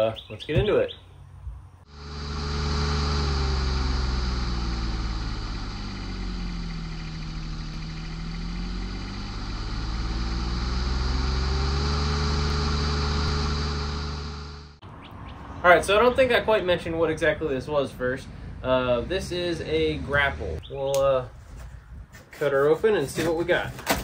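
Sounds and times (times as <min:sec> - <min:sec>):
engine running steadily: 0:01.9 - 0:14.8.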